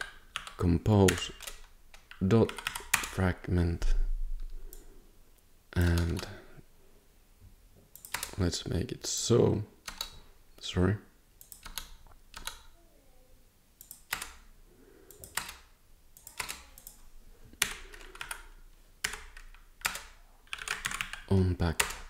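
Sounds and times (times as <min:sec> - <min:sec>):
computer keyboard typing: 0:00.0 - 0:03.2, 0:08.0 - 0:08.4, 0:09.8 - 0:10.3, 0:11.4 - 0:12.7, 0:13.8 - 0:14.4, 0:15.1 - 0:17.0, 0:17.6 - 0:22.0.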